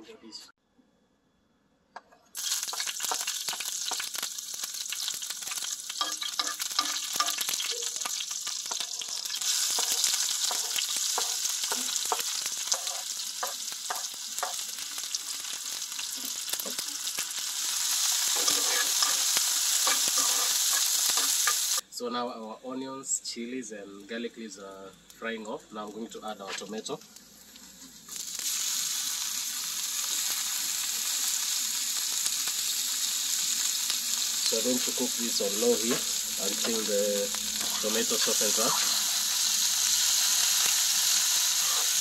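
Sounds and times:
onions sizzling in oil: 0:02.4 - 0:21.8, 0:25.8 - 0:42.0
metal spoon scraping pan: 0:06.0 - 0:07.9, 0:09.5 - 0:14.6, 0:18.3 - 0:21.7.

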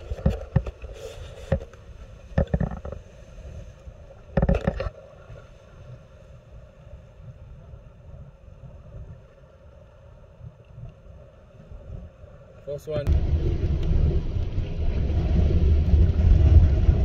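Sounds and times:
low wind rumble on microphone: 0:00.0 - 0:17.0
knocks and rustles: 0:02.3 - 0:03.1, 0:04.3 - 0:04.9.

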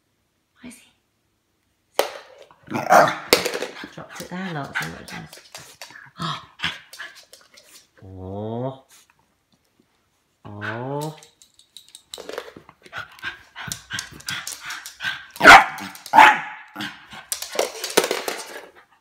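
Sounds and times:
puppy barking and yapping: 0:13.4 - 0:17.3.

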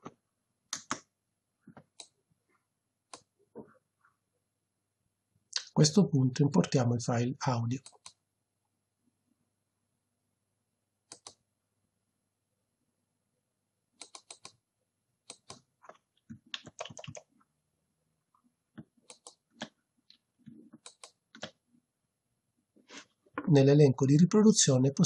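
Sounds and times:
computer mouse clicks: 0:00.0 - 0:01.1, 0:01.7 - 0:02.2, 0:03.1 - 0:03.3, 0:07.8 - 0:08.2, 0:11.1 - 0:11.4, 0:14.0 - 0:14.6, 0:15.3 - 0:17.3, 0:18.8 - 0:19.8, 0:20.7 - 0:21.6
keyboard clicks: 0:00.7 - 0:01.1, 0:07.8 - 0:08.2, 0:11.1 - 0:11.4, 0:14.0 - 0:14.6, 0:15.3 - 0:17.3, 0:18.8 - 0:19.8, 0:20.7 - 0:21.6.

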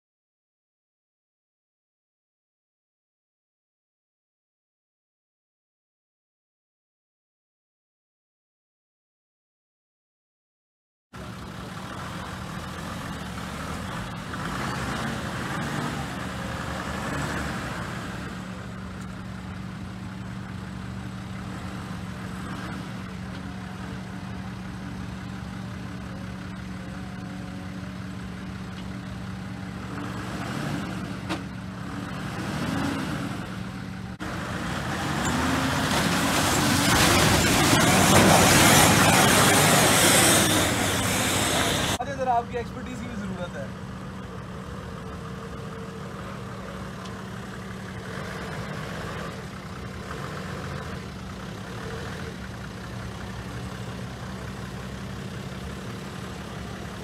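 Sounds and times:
tyres churning mud: 0:11.2 - 0:24.6, 0:29.2 - 0:43.4
diesel engine running: 0:11.2 - 0:57.0
mud splashing: 0:34.2 - 0:42.0.

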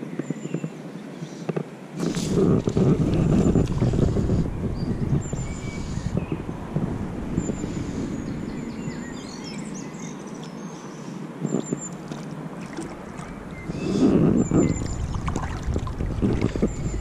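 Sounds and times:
birds chirping: 0:00.0 - 0:17.0
river water splashing: 0:05.7 - 0:17.0.

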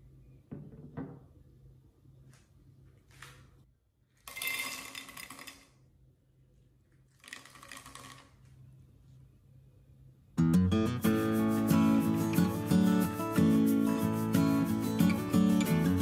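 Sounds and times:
ice cubes clattering in glass: 0:04.3 - 0:05.7.

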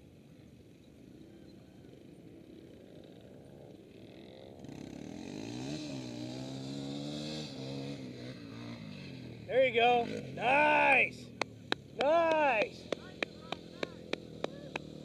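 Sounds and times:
quad engine revving: 0:04.7 - 0:09.2, 0:12.8 - 0:15.0.

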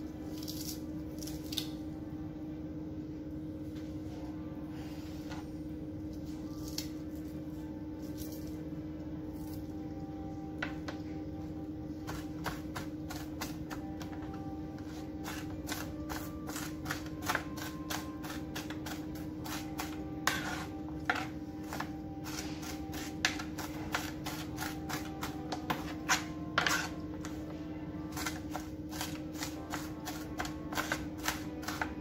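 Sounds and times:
knife chopping on plastic board: 0:28.2 - 0:32.0.

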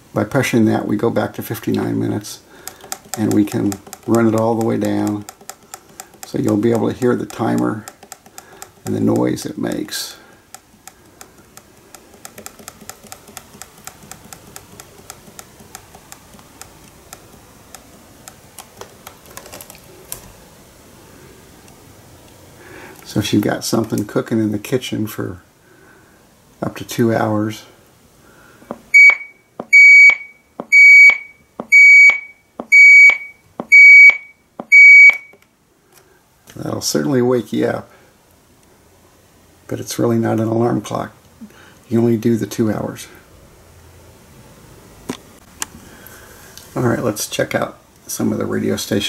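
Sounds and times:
timer clicking: 0:02.6 - 0:18.7
high-pitched electronic alarm beep: 0:29.0 - 0:35.4.

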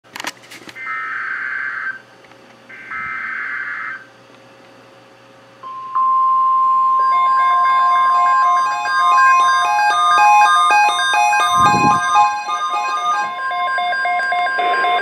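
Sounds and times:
radio beeping alarm melody: 0:05.6 - 0:15.0
steady alert tone: 0:05.6 - 0:15.0.

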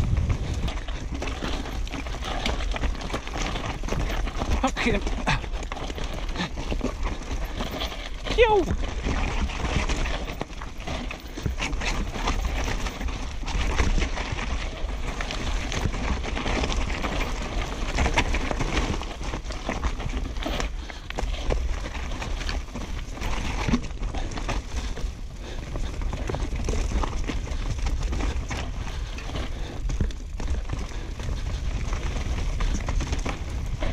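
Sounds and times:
wind on microphone: 0:00.0 - 0:01.8
bike knocking and rattling on rocks: 0:00.0 - 0:33.9
bike tyres rumbling: 0:00.0 - 0:33.9.

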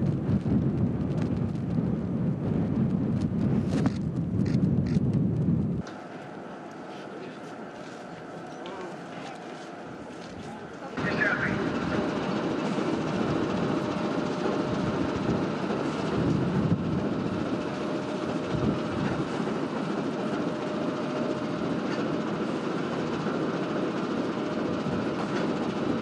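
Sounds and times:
diesel locomotive engine rumble: 0:00.0 - 0:26.0.

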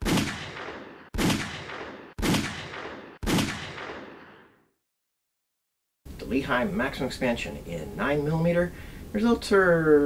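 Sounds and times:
pistol shots ringing: 0:00.0 - 0:04.4.

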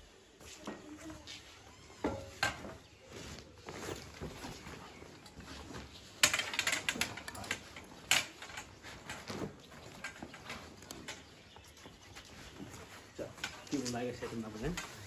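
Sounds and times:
folding chair frame rattling: 0:03.7 - 0:15.0.

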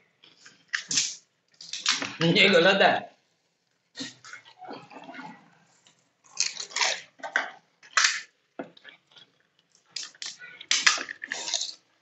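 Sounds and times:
crisp shells crunching: 0:06.3 - 0:07.0.

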